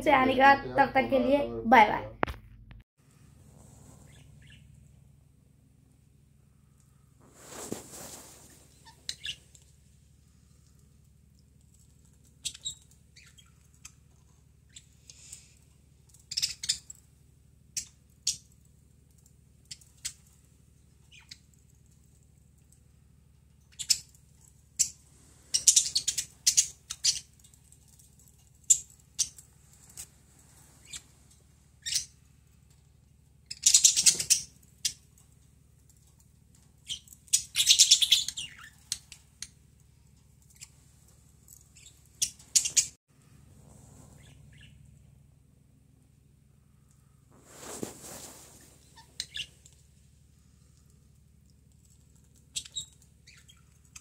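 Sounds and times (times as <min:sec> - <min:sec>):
budgerigars chirping: 0:04.1 - 0:04.6, 0:24.8 - 0:27.3, 0:33.5 - 0:35.0, 0:36.9 - 0:39.0, 0:41.8 - 0:42.9, 0:44.2 - 0:44.8.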